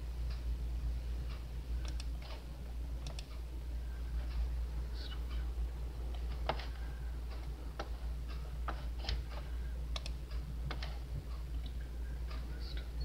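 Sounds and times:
steady low hum: 0:00.0 - 0:13.0
computer mouse clicking: 0:01.8 - 0:02.4, 0:03.0 - 0:03.4, 0:08.7 - 0:11.0.

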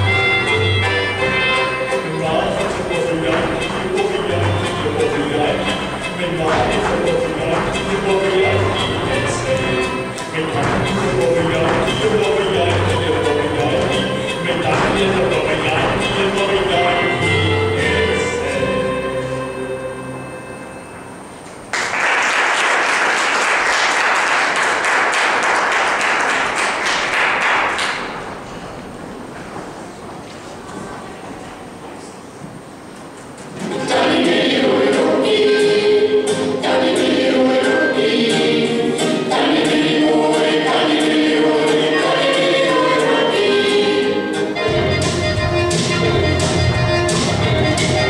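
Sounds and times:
music: 0:00.0 - 0:21.6, 0:33.6 - 0:48.0
group of voices singing: 0:02.0 - 0:20.1, 0:33.6 - 0:44.6
audience applauding: 0:21.7 - 0:28.3.

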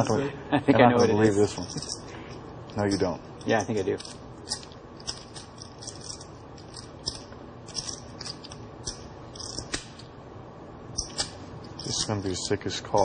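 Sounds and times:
poker chips clicking: 0:01.6 - 0:02.1, 0:03.4 - 0:10.0, 0:11.0 - 0:12.3.

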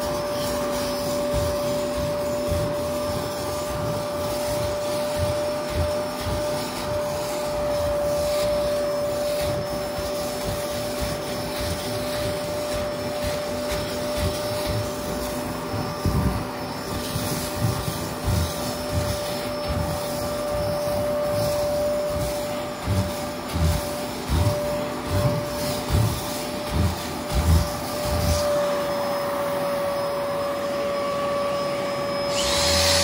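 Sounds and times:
nozzle bumping and rubbing carpet: 0:00.0 - 0:31.4
carpet cleaner whining: 0:00.0 - 0:33.0.

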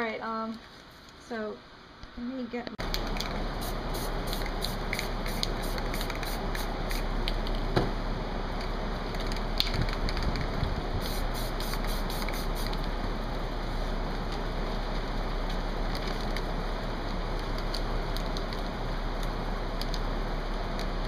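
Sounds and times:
spray paint can hissing: 0:03.5 - 0:07.1, 0:11.0 - 0:12.9.

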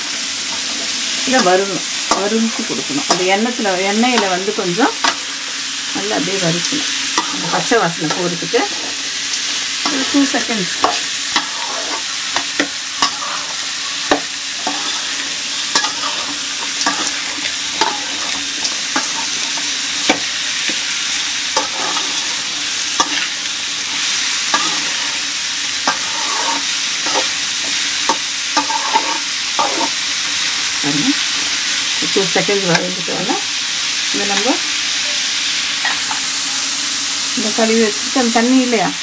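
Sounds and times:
vegetables sizzling in oil: 0:00.0 - 0:39.0
metal spatula scraping pan: 0:07.2 - 0:20.8, 0:21.5 - 0:30.0.

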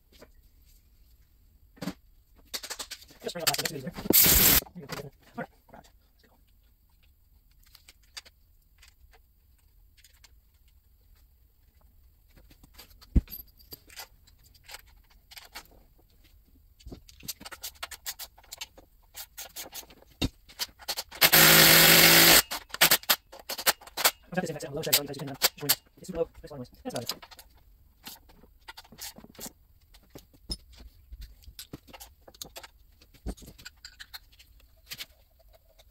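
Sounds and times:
small power tool running: 0:04.1 - 0:04.6, 0:21.2 - 0:22.5.

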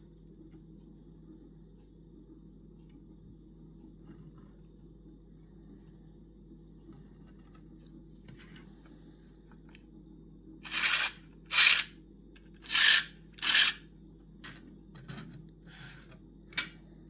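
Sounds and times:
plastic tracks rasping: 0:12.6 - 0:13.8.

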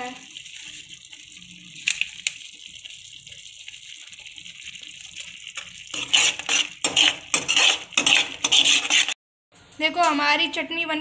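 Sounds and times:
paste sizzling in hot oil: 0:00.0 - 0:09.2
metal spoon scraping a pan: 0:05.9 - 0:09.2.

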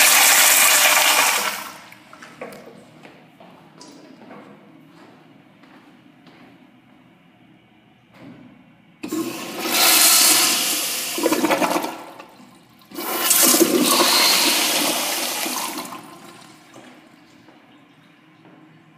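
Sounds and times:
toilet flushing: 0:00.0 - 0:02.2, 0:09.0 - 0:17.4.

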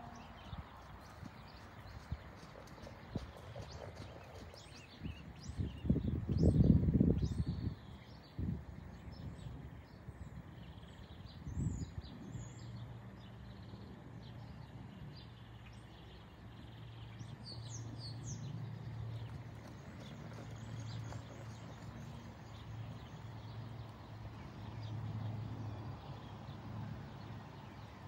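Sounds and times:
faint outdoor noise: 0:00.0 - 0:28.0
small birds chirping: 0:00.0 - 0:28.0.

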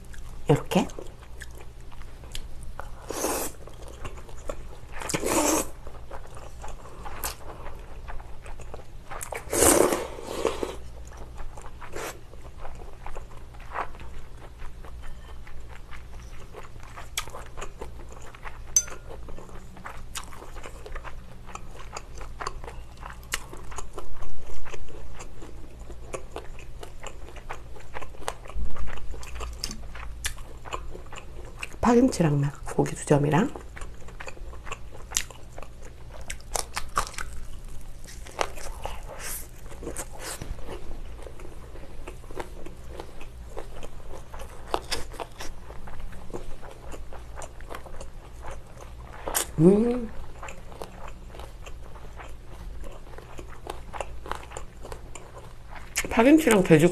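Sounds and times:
person slurping noodles: 0:05.1 - 0:05.7, 0:09.5 - 0:10.8.

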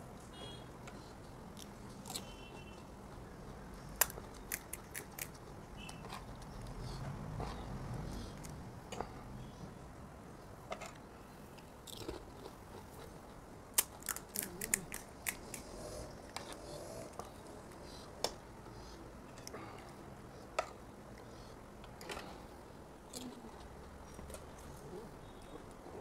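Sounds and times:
crunching of crisp shells: 0:03.9 - 0:05.4, 0:11.8 - 0:15.7.

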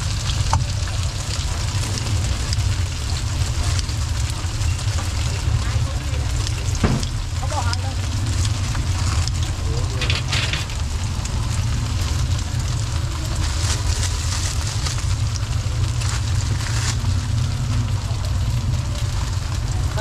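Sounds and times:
street traffic rumble: 0:00.0 - 0:20.0
plastic bag crinkling: 0:07.0 - 0:17.9.

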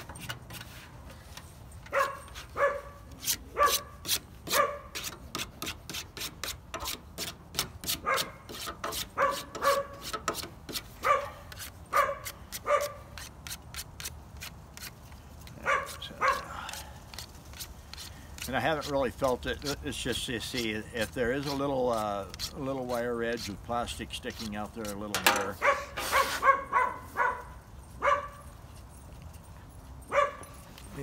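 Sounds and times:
dog barking: 0:01.9 - 0:03.0, 0:03.6 - 0:04.9, 0:08.0 - 0:08.4, 0:09.2 - 0:09.9, 0:11.0 - 0:13.0, 0:15.6 - 0:16.5, 0:25.6 - 0:28.4, 0:30.1 - 0:30.5
sharpener scraping plastic: 0:17.1 - 0:26.3.

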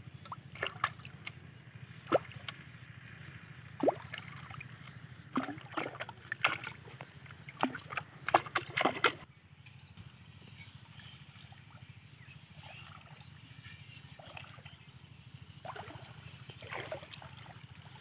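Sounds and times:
water plopping and splashing: 0:00.2 - 0:02.7, 0:03.7 - 0:09.2, 0:15.6 - 0:18.0.

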